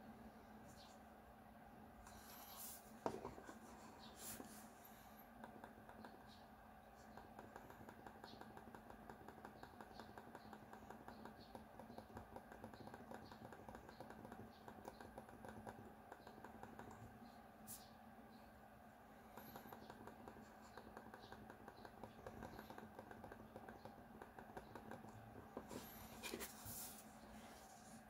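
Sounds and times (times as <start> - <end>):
muted mouse clicks: 7.1 - 17.0.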